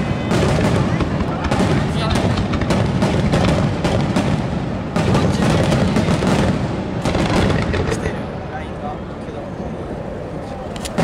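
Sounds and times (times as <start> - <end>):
fireworks barrage booming: 0.0 - 8.8.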